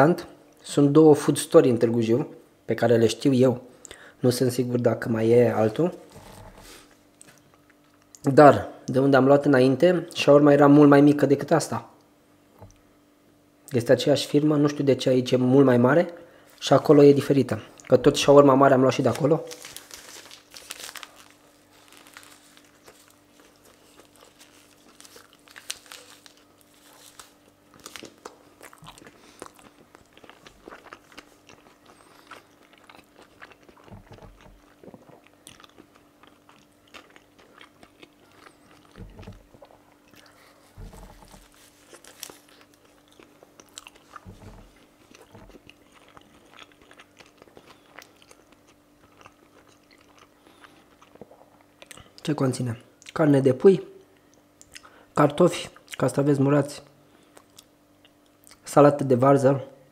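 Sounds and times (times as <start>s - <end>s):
faint steady hum: 0.0s - 59.9s
crunchy biting and chewing: 19.0s - 52.1s.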